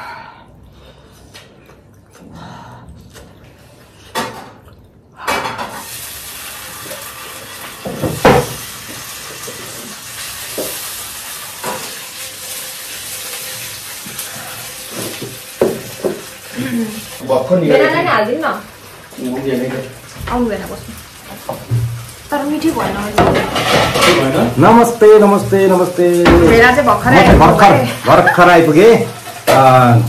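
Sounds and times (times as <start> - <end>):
kitchenware clinking: 22.6 - 29.9.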